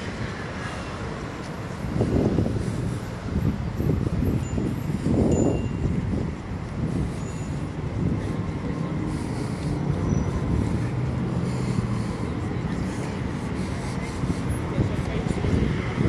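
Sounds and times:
vehicles driving past: 0.0s - 16.0s
low engine hum: 5.2s - 16.0s.

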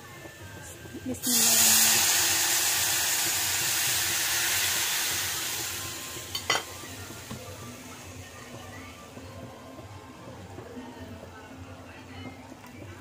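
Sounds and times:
water sizzling in hot fat: 0.0s - 9.8s.

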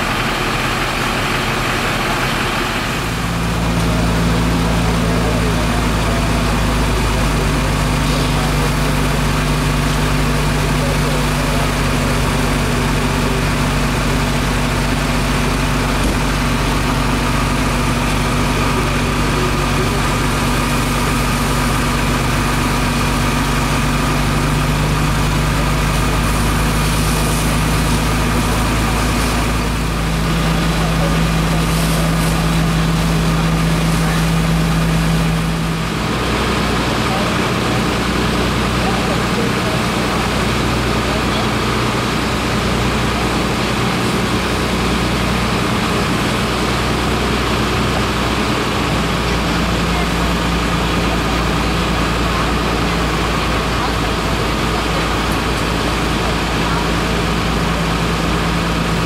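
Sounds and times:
fire engine running pump: 0.0s - 59.0s
hiss of hose streams: 25.3s - 35.3s.

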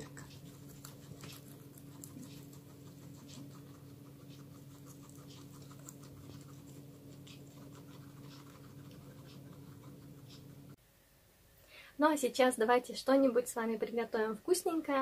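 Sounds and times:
guinea pigs chewing: 0.0s - 10.8s
steady low hum: 0.0s - 15.0s.

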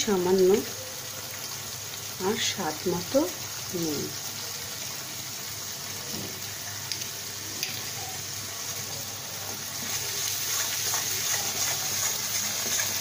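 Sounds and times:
spice paste sizzling in oil: 0.0s - 13.0s
metal spatula stirring: 9.8s - 13.0s.

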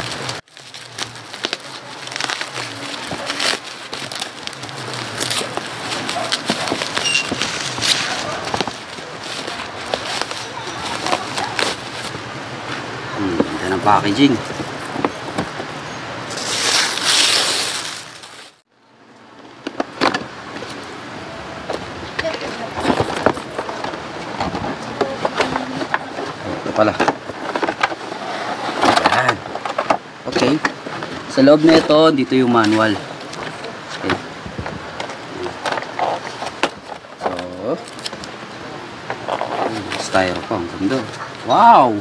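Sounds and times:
bubble wrap crinkling: 0.0s - 12.3s, 16.3s - 18.7s, 34.6s - 38.3s.

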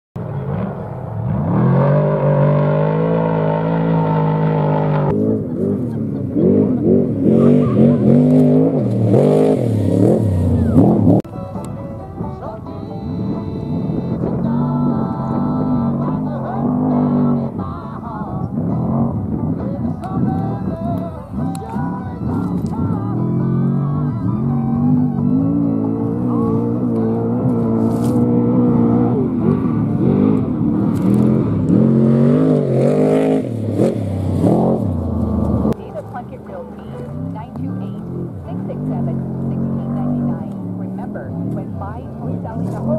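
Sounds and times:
truck engine revving: 0.2s - 42.9s
music with held notes: 10.6s - 29.1s, 35.8s - 38.4s.

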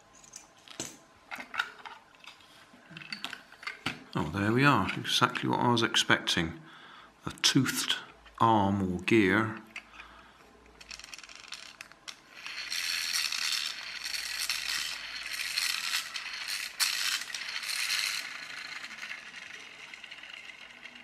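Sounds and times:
toy car gears rattling and whirring: 10.7s - 21.0s.

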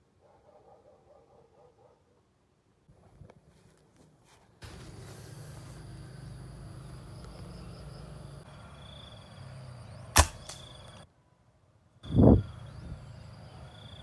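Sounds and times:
air rifle shot: 10.1s - 10.7s.

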